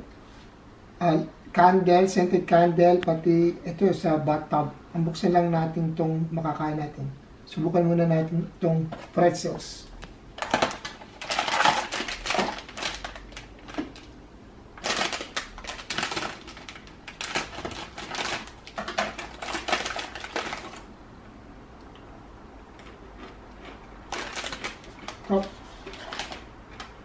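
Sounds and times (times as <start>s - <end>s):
plastic bag crinkling: 10.4s - 14.2s, 14.8s - 20.9s, 22.7s - 27.0s
scissors cutting plastic: 14.8s - 20.8s, 24.1s - 26.9s.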